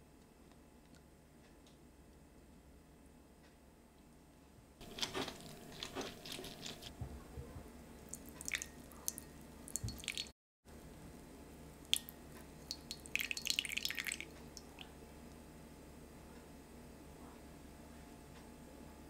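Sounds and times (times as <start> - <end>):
lemon squishing: 4.8 - 6.9, 8.0 - 10.3
fine dripping crackles: 8.0 - 10.3
juice pouring into pan: 12.7 - 14.3.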